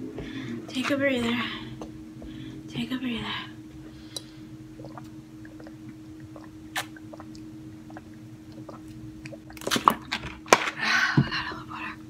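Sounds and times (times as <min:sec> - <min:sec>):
person gulping and swallowing: 0:03.7 - 0:10.2.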